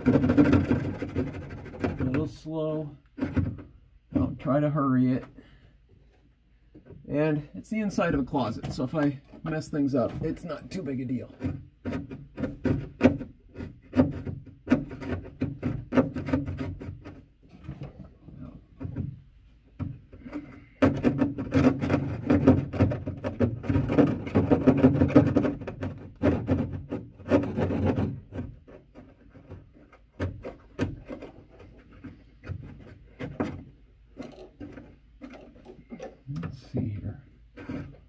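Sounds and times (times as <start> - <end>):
hand saw cutting drywall: 0.0 - 2.1, 20.2 - 33.6.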